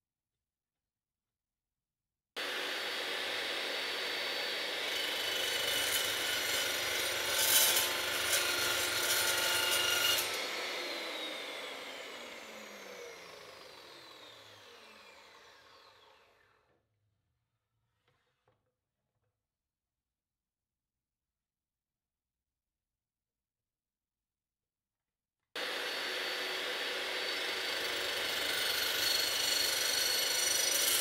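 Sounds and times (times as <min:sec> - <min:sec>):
chop saw cutting steel: 0:02.4 - 0:16.6, 0:25.6 - 0:31.0
saw blade spinning down whine: 0:02.4 - 0:16.6.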